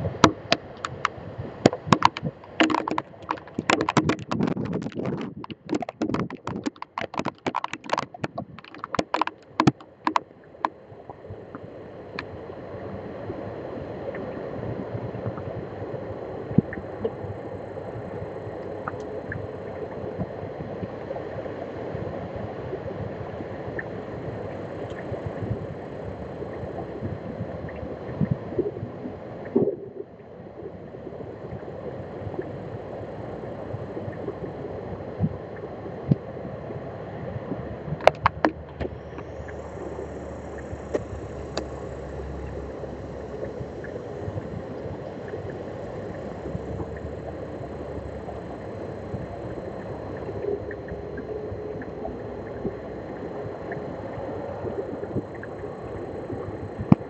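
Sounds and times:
wind-driven rain rushing: 0.0s - 10.2s
raindrops clicking on microphone: 0.0s - 11.6s, 18.6s - 20.4s, 37.5s - 52.8s, 53.6s - 57.0s
small ticks: 0.2s - 10.7s.

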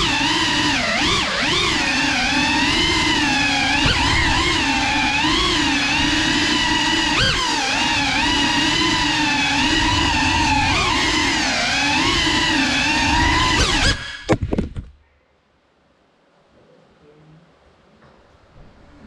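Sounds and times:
drone motors whining: 0.0s - 14.6s
drone crashing knocks: 2.8s - 14.8s.

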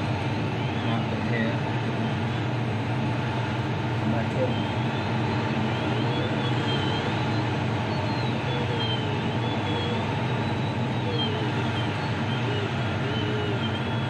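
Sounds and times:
airflow rushing around glider canopy: 0.0s - 14.0s
faint whistling tones: 4.1s - 14.0s.

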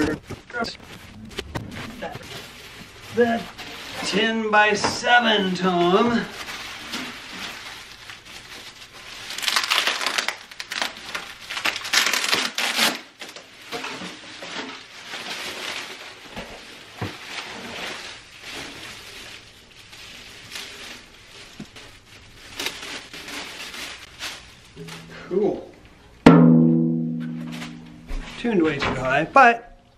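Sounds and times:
plastic packaging crinkling: 5.9s - 25.1s.

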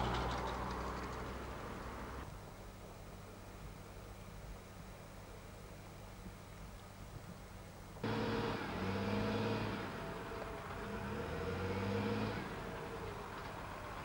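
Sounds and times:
heavy machine engine running: 8.0s - 14.0s.

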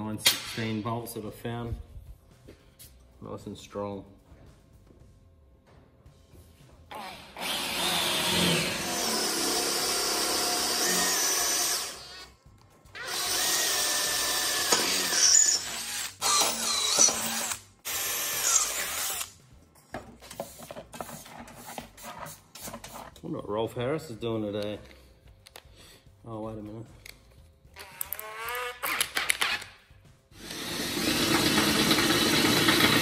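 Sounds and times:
drill boring through steel: 7.0s - 12.3s, 13.0s - 19.3s, 30.4s - 33.0s.

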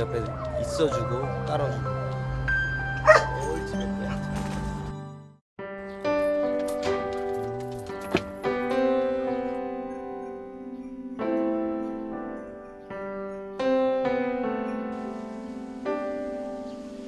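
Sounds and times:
slow piano chords: 8.4s - 17.0s.

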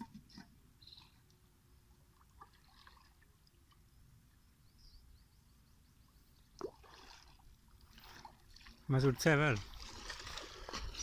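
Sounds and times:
water streaming and dripping: 6.4s - 11.0s
water splash: 6.6s - 11.0s.

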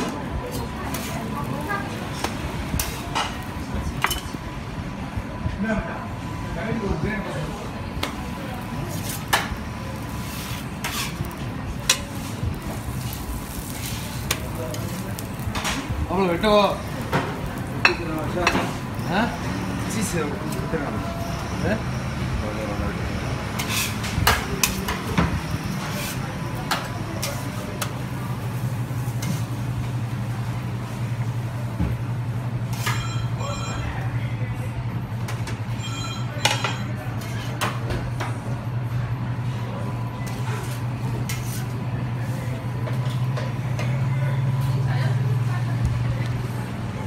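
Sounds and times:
metal spatula scraping griddle: 0.9s - 1.3s, 8.9s - 15.0s, 23.5s - 24.9s, 25.8s - 26.2s, 40.2s - 41.7s
low sizzle: 7.8s - 33.0s.

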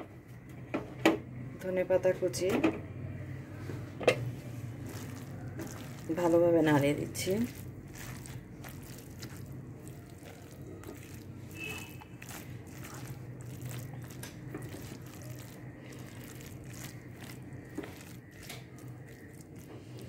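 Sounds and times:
low steady hum: 0.0s - 20.0s
spatula scraping in pan: 7.2s - 20.0s.

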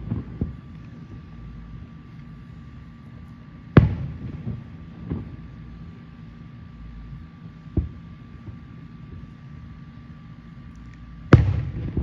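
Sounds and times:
firework shells booming: 0.0s - 1.3s, 3.7s - 5.9s, 7.7s - 9.3s, 11.3s - 12.0s
steady low rumble: 0.0s - 12.0s.

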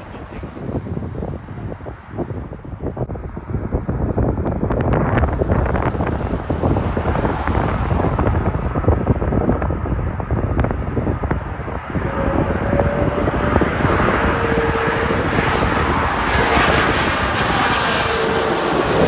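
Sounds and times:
gusty wind buffeting microphone: 0.0s - 19.0s
jet engines whining: 8.1s - 19.0s.

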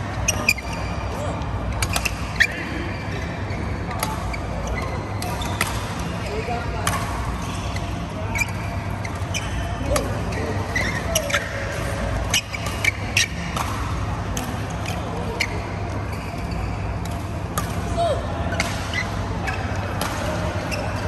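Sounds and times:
shoes squeaking on court: 0.2s - 1.0s, 1.8s - 6.6s, 7.4s - 14.1s, 14.7s - 17.6s, 18.6s - 21.0s
rackets striking shuttlecocks: 11.3s - 15.2s, 17.0s - 17.9s, 18.5s - 20.8s.

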